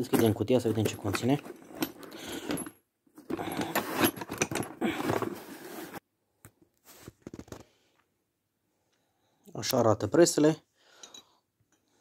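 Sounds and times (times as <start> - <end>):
cardboard box rustling and scraping: 3.3 - 6.0.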